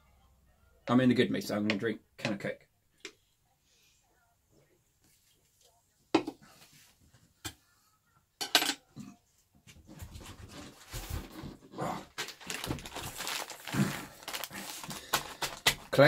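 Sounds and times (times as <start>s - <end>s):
rummaging clatter and knocks: 9.9s - 13.4s.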